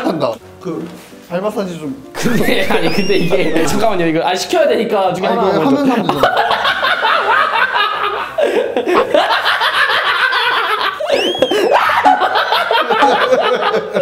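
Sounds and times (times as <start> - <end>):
high squeal: 2.2 - 4.2
men laughing: 2.2 - 4.2, 5.8 - 14.0.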